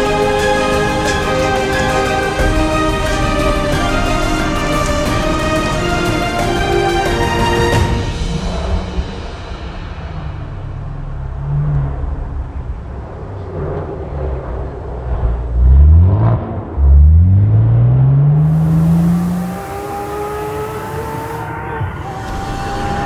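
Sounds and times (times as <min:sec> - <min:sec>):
rally car engine accelerating: 0:09.9 - 0:23.0.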